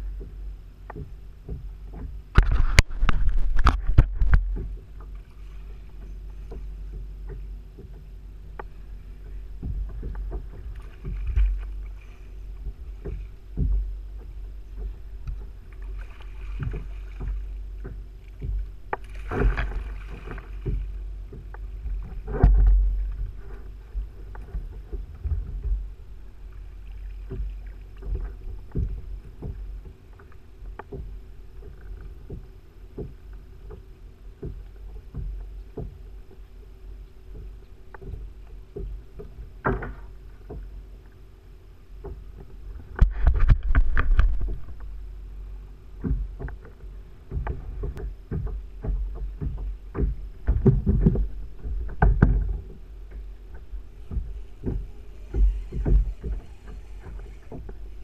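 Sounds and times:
wind rumble on microphone: 0.0s - 58.0s.

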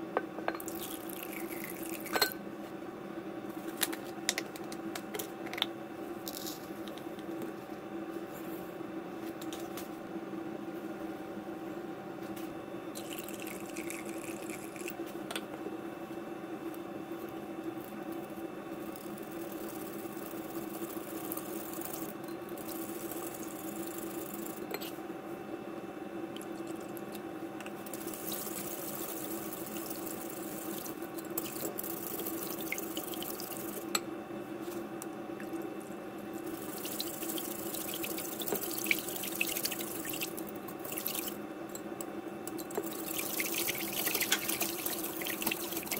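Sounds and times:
steady hum: 0.0s - 45.9s
water running from tap: 13.0s - 14.9s, 27.8s - 33.9s, 36.4s - 41.4s, 42.5s - 45.9s.

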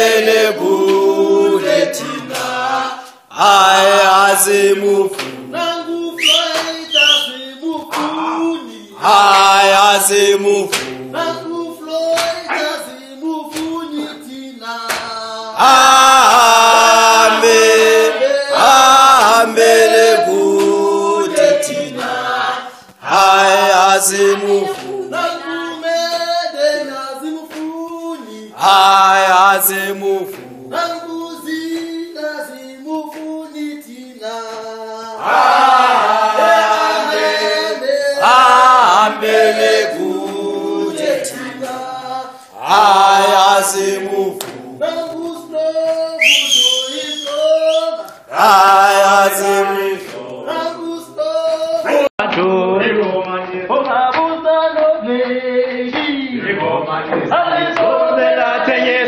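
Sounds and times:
crowd singing and chanting: 0.0s - 59.0s
high whistle: 6.2s - 7.4s, 46.2s - 48.1s.

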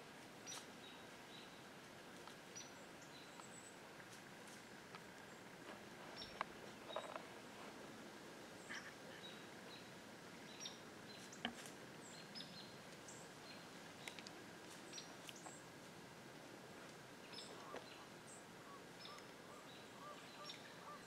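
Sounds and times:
faint steady hiss: 0.0s - 21.0s
faint clicks: 14.0s - 14.4s.

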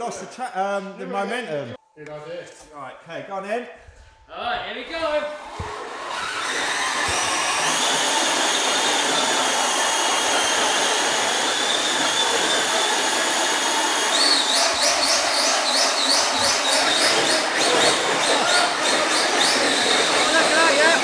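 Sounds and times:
electric motors whining: 5.3s - 21.0s.

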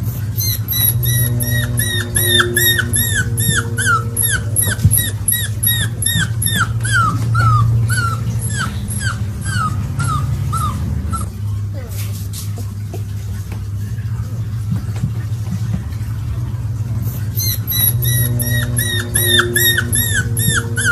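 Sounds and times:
puppy whimpering: 0.0s - 11.9s, 17.0s - 20.9s
steady low hum: 0.0s - 11.9s, 12.6s - 20.9s.

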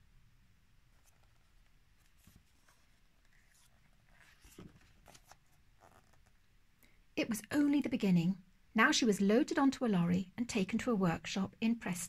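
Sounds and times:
book pages turning: 0.9s - 6.4s.

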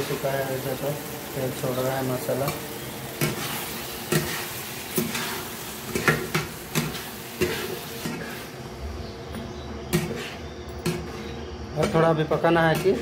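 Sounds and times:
masala sizzling: 0.0s - 13.0s
spoon scraping a pan: 3.2s - 8.5s, 9.9s - 13.0s.

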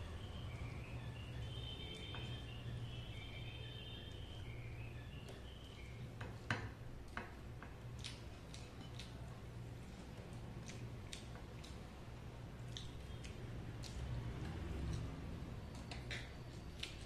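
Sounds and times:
birds chirping: 0.0s - 6.4s.

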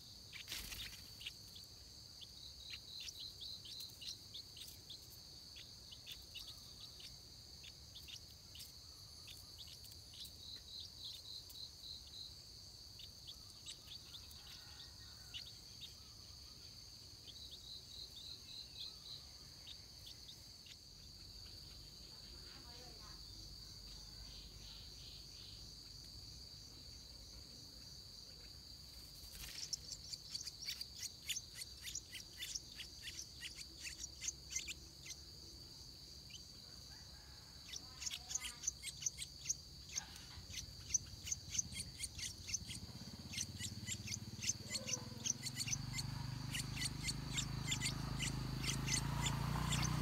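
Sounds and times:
nestlings begging chirps: 0.0s - 23.0s, 28.4s - 35.5s, 36.2s - 50.0s
high-pitched insect drone: 37.6s - 50.0s.

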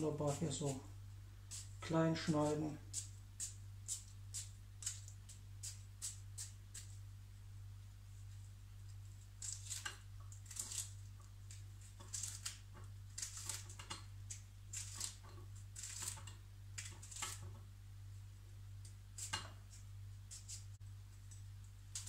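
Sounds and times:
steady low hum: 0.0s - 22.0s
knife cutting cucumber: 1.5s - 7.0s, 9.4s - 17.6s, 18.8s - 20.8s.

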